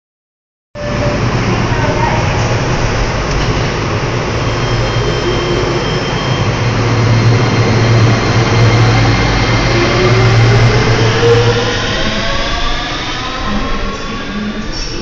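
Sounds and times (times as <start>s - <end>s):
low hum: 0.8s - 12.3s
light rail train running past: 0.8s - 15.0s
rising motor whine: 3.2s - 13.6s.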